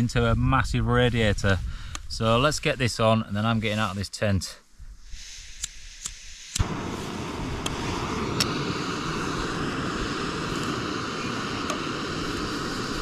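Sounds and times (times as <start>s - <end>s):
gas burner rushing hiss: 5.0s - 13.0s
stove igniter clicks: 5.6s - 6.7s, 7.6s - 7.8s, 8.4s - 8.6s, 11.6s - 11.9s.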